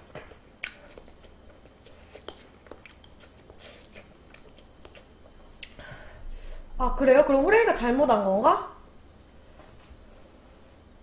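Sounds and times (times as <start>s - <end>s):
person chewing food: 0.0s - 5.8s.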